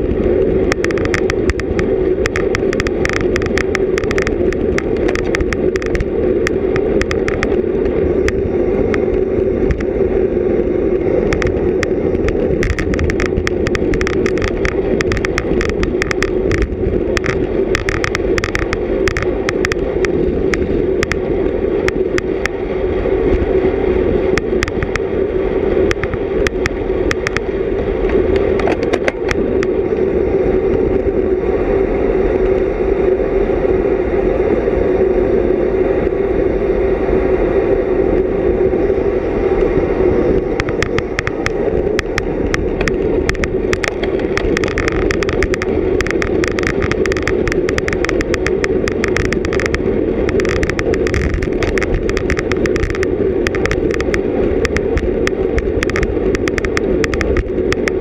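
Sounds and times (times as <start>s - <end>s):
bicycle tyre noise: 0.0s - 58.0s
wind rushing: 0.0s - 58.0s
sharp clicks: 0.7s - 7.6s, 11.3s - 21.2s, 24.4s - 25.1s, 25.9s - 27.5s, 40.5s - 58.0s.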